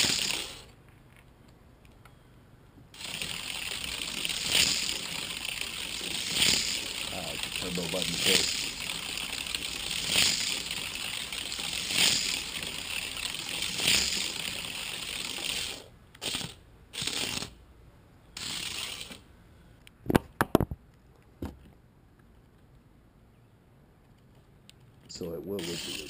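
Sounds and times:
toy car whirring on plastic track: 0:00.0 - 0:00.7, 0:03.0 - 0:17.6, 0:18.4 - 0:19.2, 0:25.5 - 0:26.0.

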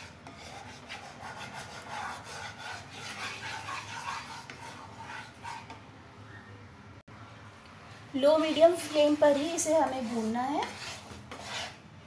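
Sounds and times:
wooden spatula scraping a pan: 0:00.0 - 0:05.8, 0:08.2 - 0:11.8.

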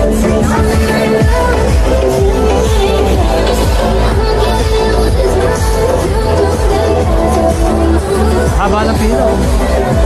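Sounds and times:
music with steady bass line: 0:00.0 - 0:10.0.

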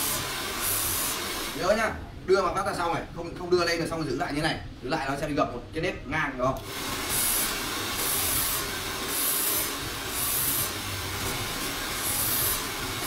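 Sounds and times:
hair dryer blowing: 0:00.0 - 0:01.6, 0:06.6 - 0:13.0.

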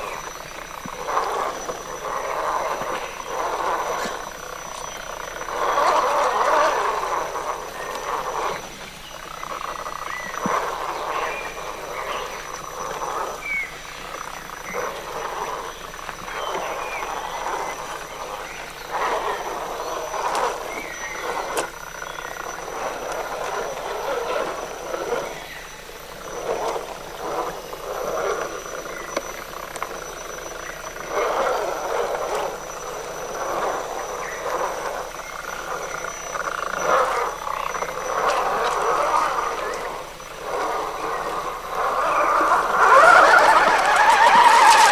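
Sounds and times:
toy truck motor whirring: 0:38.2 - 0:44.9.

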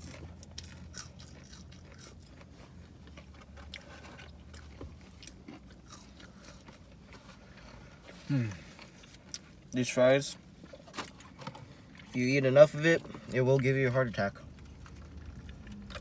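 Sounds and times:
chewing and biting food: 0:00.0 - 0:09.8, 0:14.1 - 0:16.0
low steady hum: 0:00.0 - 0:16.0.

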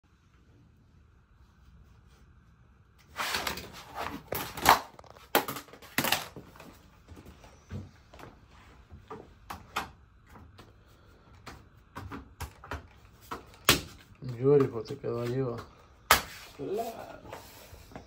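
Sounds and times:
flooring planks scraping: 0:03.1 - 0:06.3, 0:16.2 - 0:18.0.

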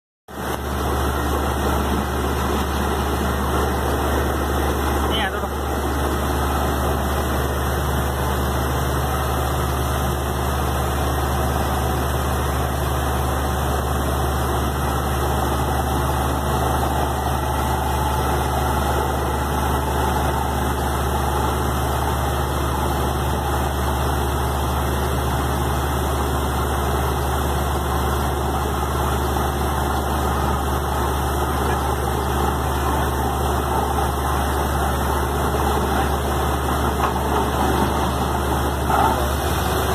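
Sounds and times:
drilling rig engine droning: 0:00.4 - 0:39.9
muddy water washing out: 0:28.7 - 0:39.9.

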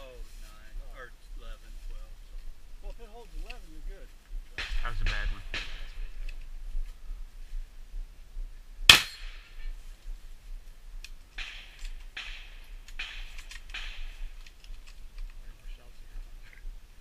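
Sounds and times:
loud gunshot: 0:04.6 - 0:06.2, 0:08.9 - 0:09.7, 0:11.4 - 0:14.2.

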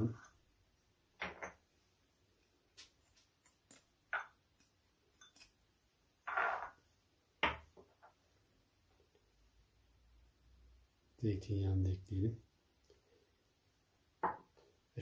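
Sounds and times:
china clinks and taps: 0:05.2 - 0:05.6.

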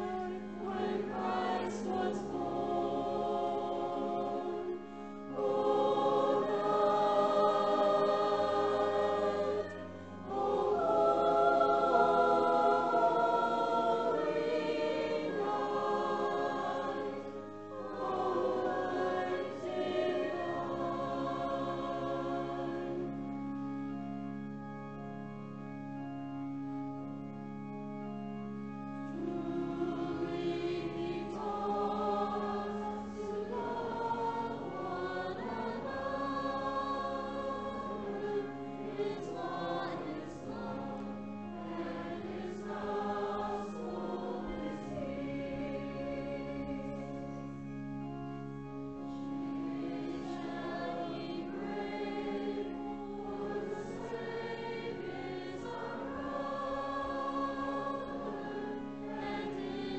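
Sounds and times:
congregation singing a hymn: 0:00.0 - 0:24.4, 0:29.0 - 0:59.9
organ sustained low notes: 0:00.0 - 0:59.9.

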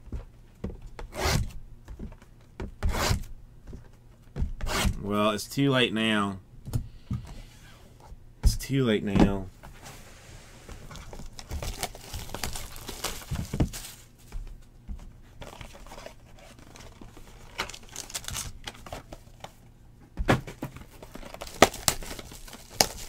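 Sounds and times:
plastic and foil wrapping crinkling: 0:10.9 - 0:14.3, 0:15.4 - 0:19.4, 0:20.8 - 0:23.0.

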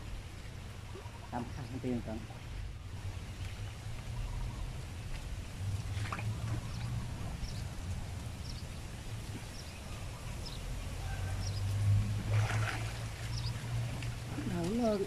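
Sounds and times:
low steady hum: 0:00.0 - 0:15.0
water sloshing and splashing: 0:04.7 - 0:15.0.

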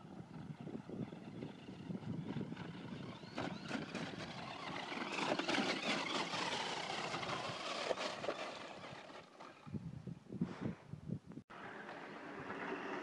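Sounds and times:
electric motor running: 0:00.6 - 0:09.5.

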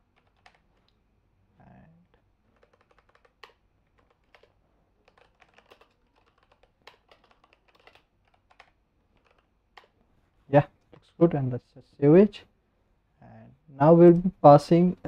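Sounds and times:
typing on computer keyboard: 0:00.0 - 0:01.0, 0:02.5 - 0:10.0.

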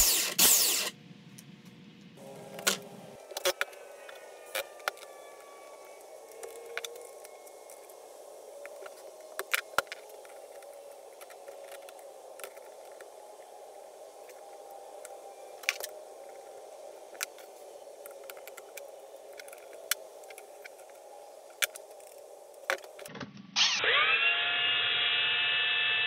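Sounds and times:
faint steady hiss: 0:00.0 - 0:23.2
plastic parts clicking and knocking: 0:02.5 - 0:05.1.

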